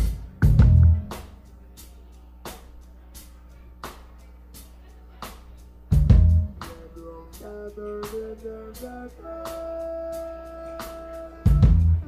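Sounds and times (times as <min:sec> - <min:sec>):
drum strokes: 0:00.0 - 0:01.5, 0:10.8 - 0:12.0
held guitar and keyboard notes: 0:00.0 - 0:02.6, 0:03.2 - 0:12.0
live rock band playing: 0:09.4 - 0:12.0.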